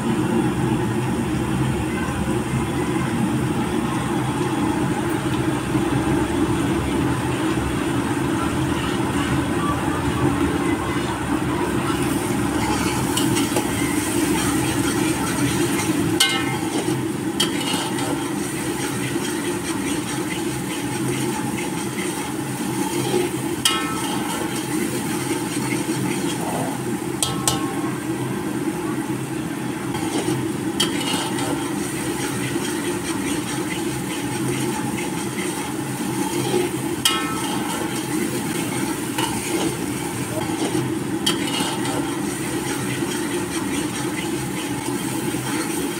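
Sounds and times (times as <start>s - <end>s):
low rumble and hiss of cooking: 0.0s - 45.9s
ladle clinking on metal pot: 16.2s - 17.9s, 27.2s - 27.9s.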